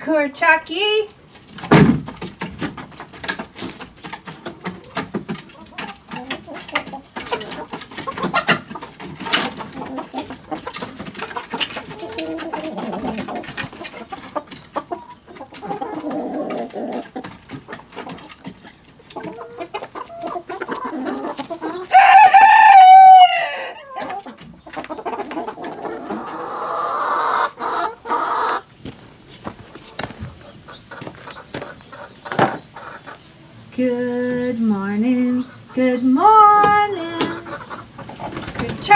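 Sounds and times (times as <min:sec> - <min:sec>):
chickens clucking: 0:00.0 - 0:38.9
rooster crowing: 0:21.9 - 0:24.0.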